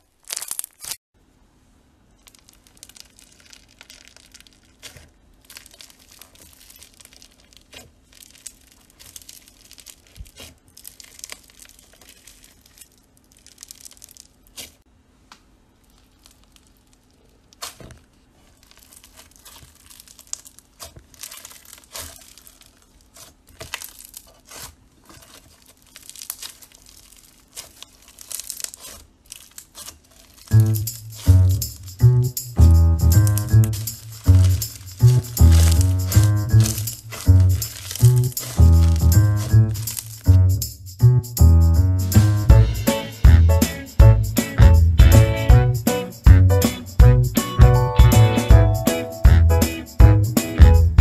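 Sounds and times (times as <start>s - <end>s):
slime crunching and popping: 0.0s - 1.0s, 2.2s - 14.8s, 15.8s - 32.0s, 32.6s - 40.5s.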